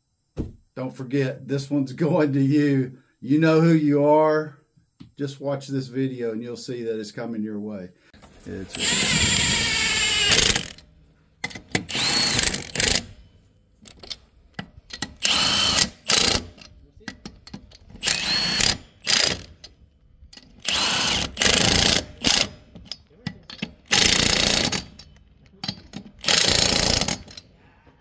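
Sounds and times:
impact wrench hammering lug nuts: 0:08.8 - 0:27.5.

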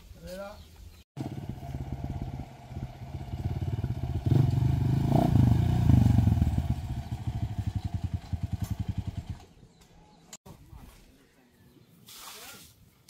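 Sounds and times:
small motorcycle engine running: 0:01.2 - 0:09.5.

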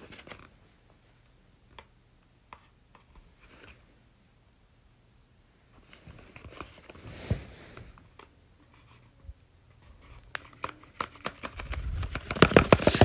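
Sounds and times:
paper rustling: 0:10.0 - 0:13.0.

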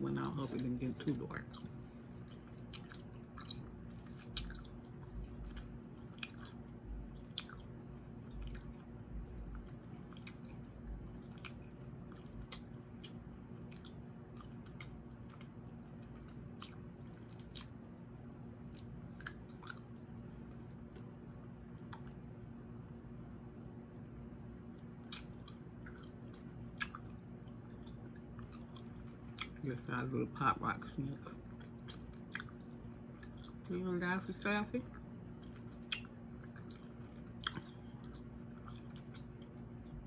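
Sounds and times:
faint steady hum: 0:00.0 - 0:40.0
mouth chewing clicks and smacks: 0:01.5 - 0:17.8, 0:18.6 - 0:20.0, 0:25.0 - 0:29.6, 0:31.5 - 0:33.7, 0:34.9 - 0:40.0.

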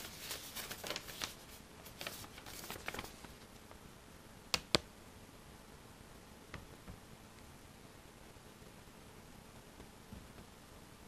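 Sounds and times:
paper rustling and crackling: 0:00.0 - 0:03.5.

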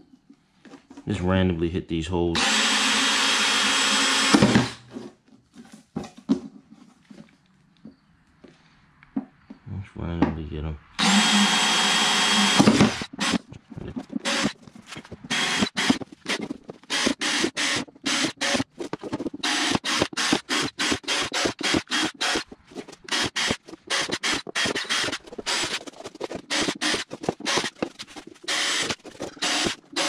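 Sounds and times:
drill boring through plastic sheet: 0:02.4 - 0:04.8, 0:11.0 - 0:13.4, 0:14.2 - 0:14.6, 0:15.3 - 0:30.0.

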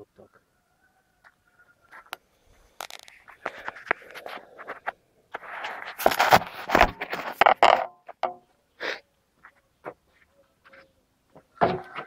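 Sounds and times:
footsteps: 0:01.2 - 0:07.5, 0:09.4 - 0:12.0
rubbing against microphone: 0:02.8 - 0:07.8
clicks and scrapes: 0:02.8 - 0:08.2.

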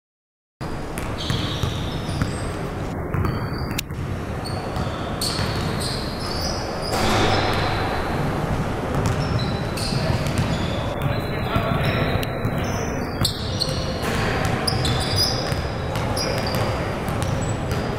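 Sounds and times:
sneakers squeaking on gym floor: 0:00.7 - 0:07.8, 0:08.8 - 0:17.9
basketball bouncing: 0:03.1 - 0:05.8, 0:06.9 - 0:13.4, 0:14.0 - 0:17.9.

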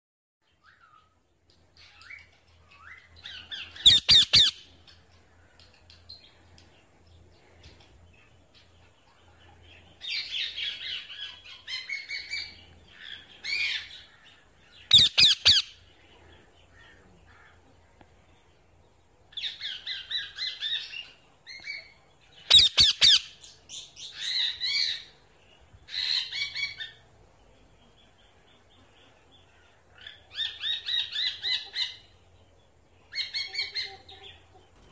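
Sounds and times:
parrots squawking and chattering: 0:03.3 - 0:04.7, 0:14.9 - 0:15.8, 0:22.5 - 0:23.4.

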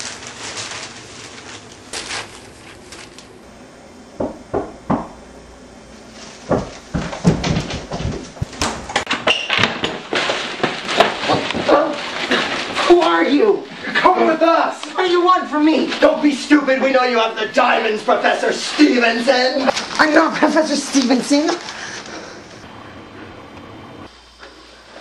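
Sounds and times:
newspaper pages rustling: 0:00.0 - 0:03.4, 0:09.6 - 0:22.6
people scuffling with bumps and knocks: 0:06.0 - 0:14.7.

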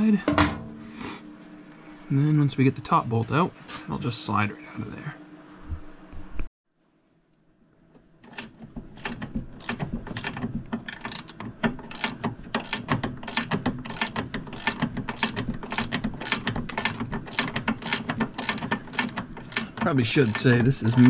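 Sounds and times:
ratchet wrench clicking: 0:08.3 - 0:21.0.

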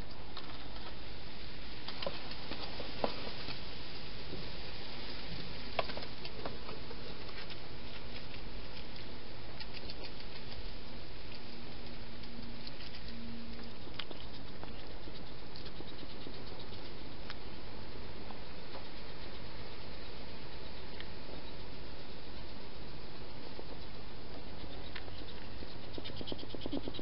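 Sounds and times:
steady hiss: 0:00.0 - 0:27.0
hedgehog clicks and patters: 0:05.8 - 0:27.0.

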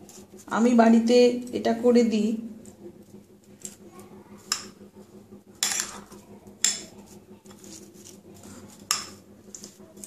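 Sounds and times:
spoon stirring rice: 0:00.0 - 0:00.8, 0:03.0 - 0:10.0.

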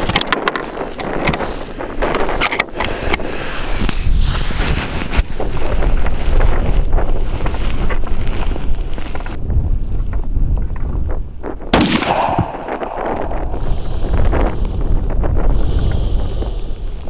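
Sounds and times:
wind buffeting microphone: 0:00.0 - 0:17.0
rifle shot echoing: 0:11.7 - 0:14.2.

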